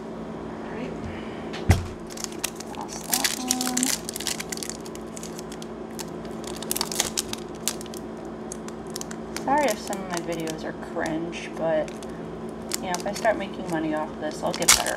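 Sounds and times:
heavy thump: 1.1s - 2.1s
foil wrapper crinkling and tearing: 2.0s - 14.9s.

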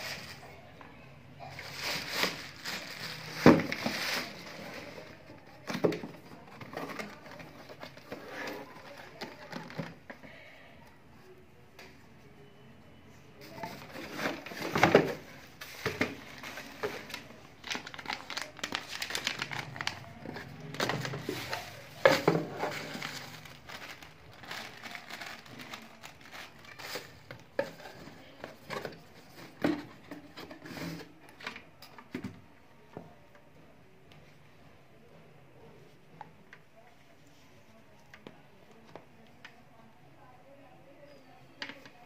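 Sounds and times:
plastic wrapping crinkling: 1.5s - 5.6s, 13.6s - 27.9s.

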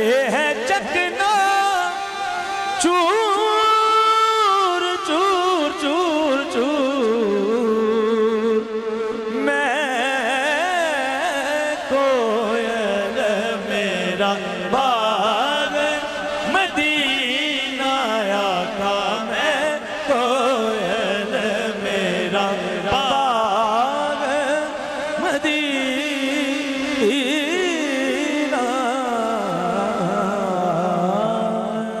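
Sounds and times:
man singing into a microphone: 0.0s - 32.0s.

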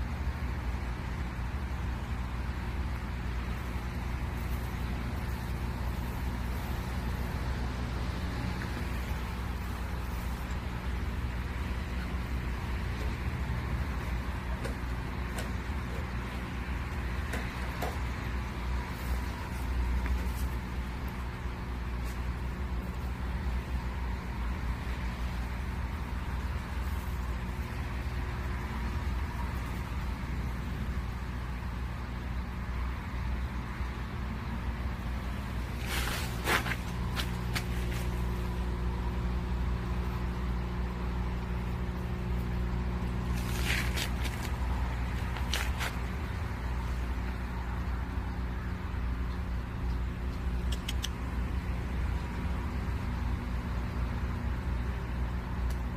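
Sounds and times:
steady low rumble: 0.0s - 55.9s
faint short clicks: 49.8s - 51.2s.

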